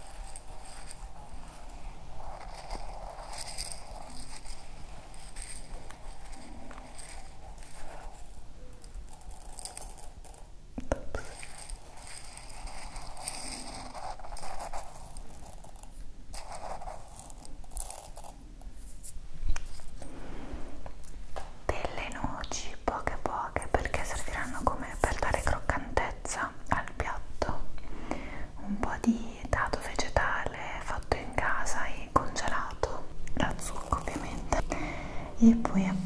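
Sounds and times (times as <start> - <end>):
rice grains rustling in a glass: 0.0 - 10.5, 11.2 - 19.1, 33.5 - 34.6.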